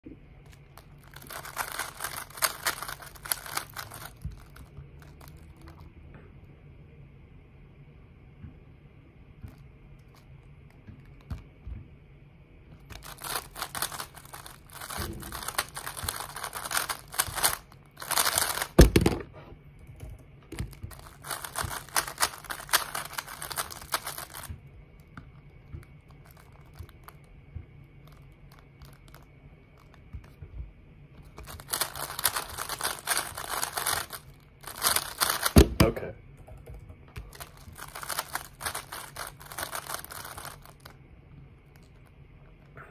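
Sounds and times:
puzzle cube plastic clicking: 0.4 - 5.8, 12.9 - 19.2, 20.9 - 24.5, 31.3 - 35.8, 37.2 - 40.9.

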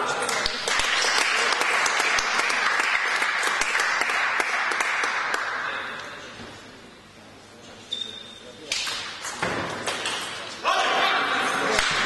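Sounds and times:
spectators applauding: 0.2 - 5.6.

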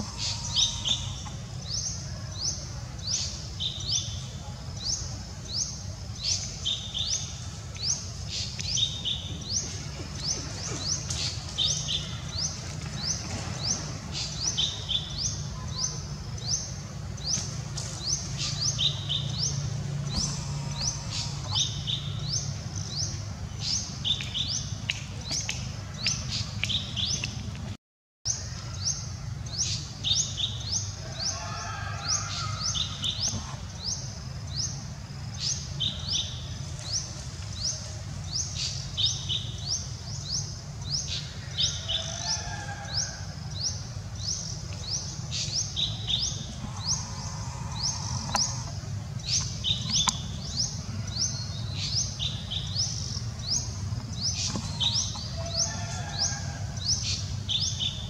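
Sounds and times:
birds chirping: 0.0 - 27.6, 28.3 - 58.0
low steady hum: 32.1 - 58.0
low bird calls: 44.5 - 58.0.

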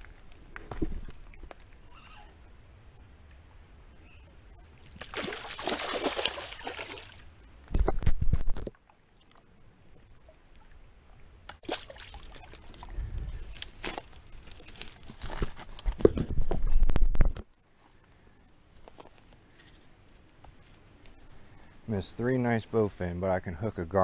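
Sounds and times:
fish thrashing and splashing: 5.0 - 7.2, 11.6 - 13.0.

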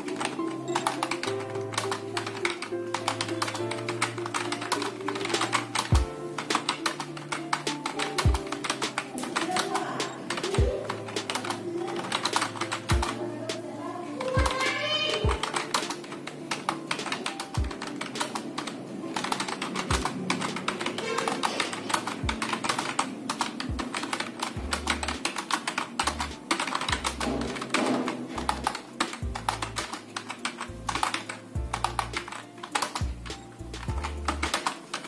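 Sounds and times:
fast keyboard typing: 0.0 - 35.0
background music with bass beat: 5.9 - 6.2, 31.6 - 32.2, 33.0 - 34.5.

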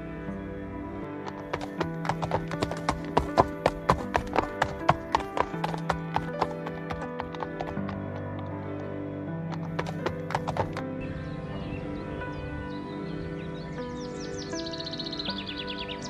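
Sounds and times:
background music: 0.0 - 16.0
horses galloping hoofbeats: 1.2 - 8.5, 9.5 - 10.8.

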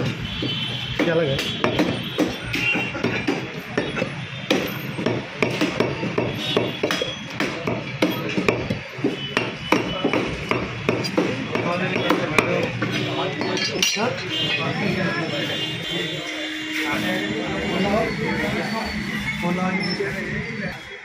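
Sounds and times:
cleaver chopping meat on wood: 0.0 - 13.6.

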